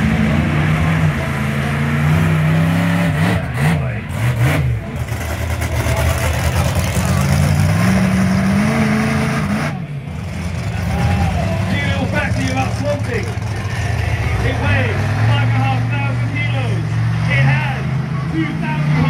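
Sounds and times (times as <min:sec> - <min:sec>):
monster truck engine revving: 0:00.0 - 0:19.0.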